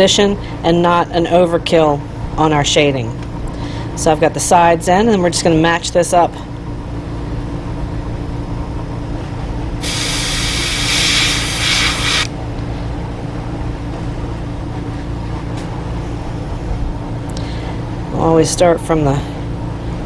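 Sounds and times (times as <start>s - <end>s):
steady low hum: 0.0s - 20.0s
airbrush hissing: 9.8s - 12.3s.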